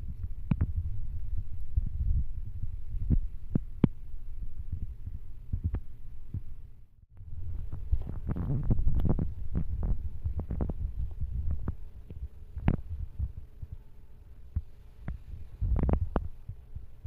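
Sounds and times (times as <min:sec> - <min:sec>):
cat purring: 0:07.2 - 0:13.9.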